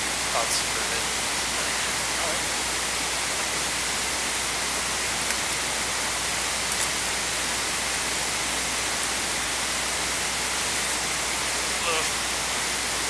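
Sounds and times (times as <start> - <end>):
background hiss: 0.0 - 13.0.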